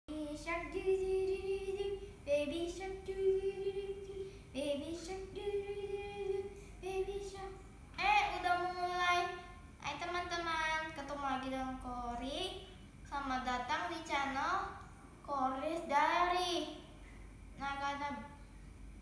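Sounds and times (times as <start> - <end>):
girl singing unaccompanied: 0.1 - 16.9, 17.6 - 18.4.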